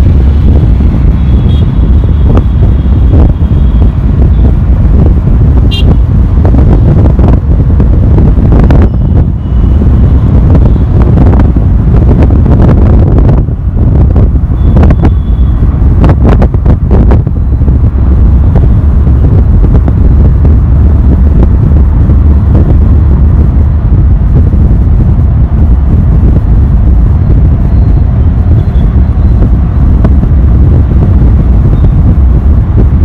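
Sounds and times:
vehicle road and wind rumble: 0:00.0 - 0:33.0
wind buffeting microphone: 0:00.0 - 0:33.0.

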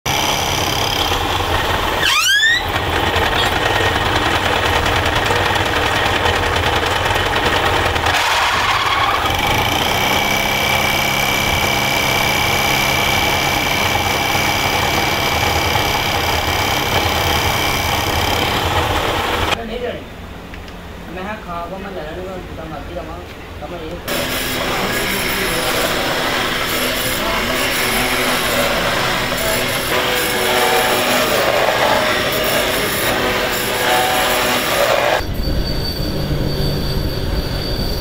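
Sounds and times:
metal lathe humming: 0:00.1 - 0:19.6, 0:24.1 - 0:35.4
rising squeal: 0:01.8 - 0:03.7, 0:08.1 - 0:09.7, 0:27.6 - 0:38.0.

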